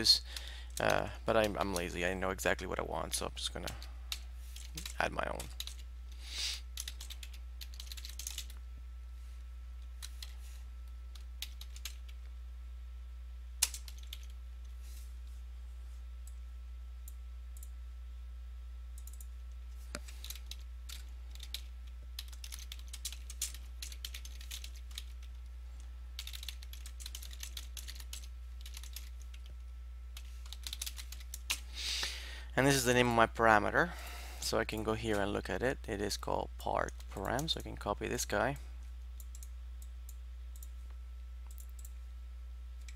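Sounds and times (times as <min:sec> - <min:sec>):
steady low hum: 0:00.0 - 0:42.9
keyboard typing clicks: 0:19.0 - 0:19.3, 0:39.2 - 0:40.8, 0:41.4 - 0:42.0.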